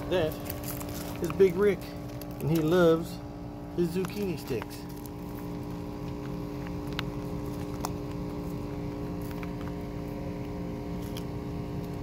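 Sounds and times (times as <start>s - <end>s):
machine hum: 0.0s - 12.0s
tortoise chewing clicks: 3.8s - 12.0s.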